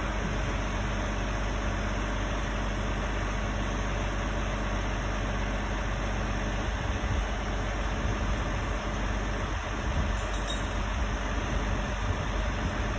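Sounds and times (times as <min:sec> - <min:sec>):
heavy engine running steadily: 0:00.0 - 0:12.9.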